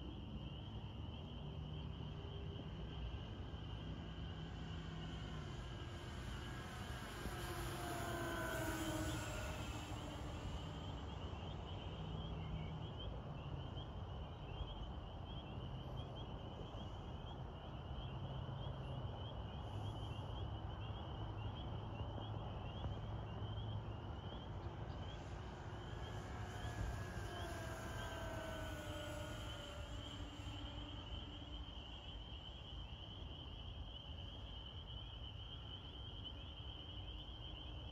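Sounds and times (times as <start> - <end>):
insects chirping rapidly: 0.0 - 37.9
model plane propellers whining: 2.4 - 12.6, 24.1 - 33.0.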